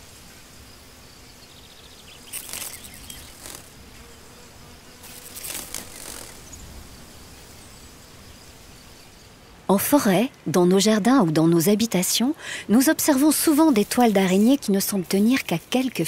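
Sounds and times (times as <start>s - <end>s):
insects buzzing: 0.0s - 10.2s, 11.9s - 16.0s
faint outdoor background: 0.0s - 16.0s.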